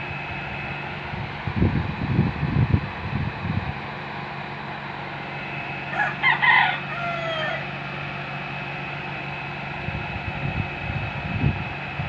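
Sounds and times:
steady mechanical hum: 0.0s - 12.0s
rooster crowing: 5.9s - 7.8s.

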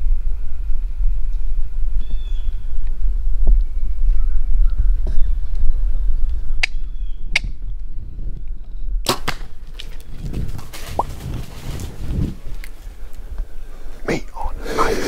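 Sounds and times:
arrow hitting animal: 9.0s - 9.6s.

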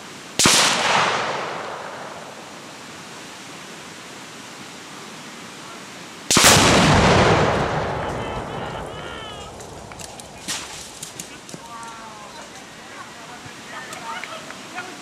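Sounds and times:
explosion with rolling rumble: 0.4s - 2.6s, 6.3s - 11.2s.

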